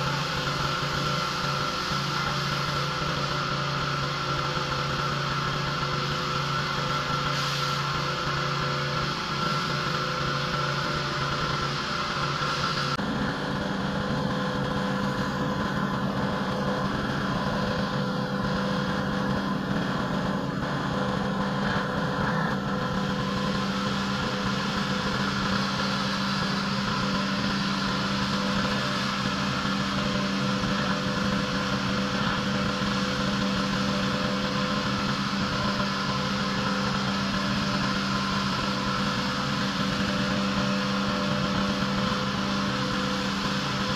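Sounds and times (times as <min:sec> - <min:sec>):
pressure washer engine hum: 0:00.0 - 0:43.9
water spray hissing: 0:06.1 - 0:09.6.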